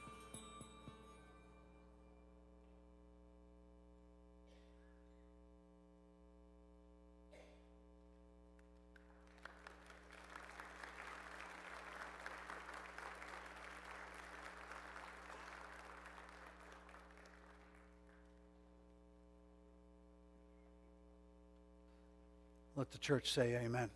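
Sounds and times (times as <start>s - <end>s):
congregation applauding: 8.9s - 18.5s.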